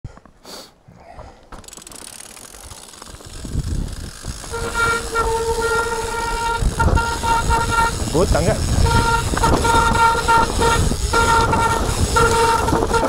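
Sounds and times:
tyre and wind rumble: 0.8 - 13.0
bike brakes squealing: 4.0 - 13.0.

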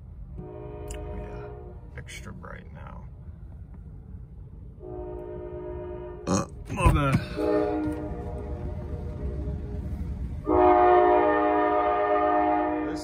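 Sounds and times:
low train rumble: 0.0 - 13.0
locomotive air horn chord: 0.3 - 1.9, 4.8 - 6.3, 7.2 - 9.4, 10.4 - 13.0.

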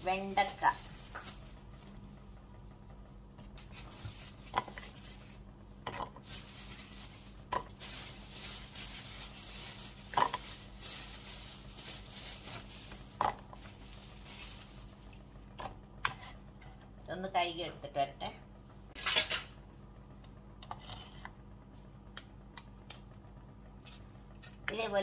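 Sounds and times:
plastic bag crinkling: 0.0 - 1.8, 3.7 - 15.2.

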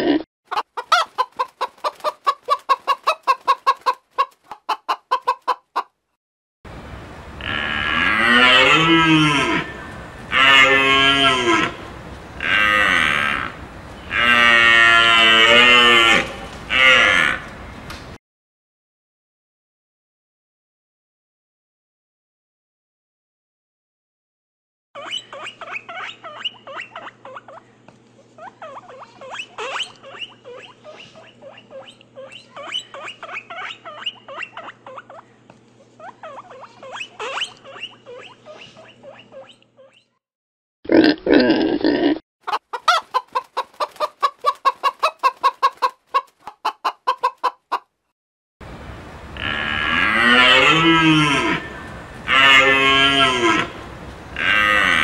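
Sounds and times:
cow mooing: 7.4 - 11.8, 12.4 - 17.5, 49.4 - 53.8, 54.4 - 55.0
high squeaky chirps: 25.0 - 27.6, 28.4 - 35.3, 36.0 - 40.2.

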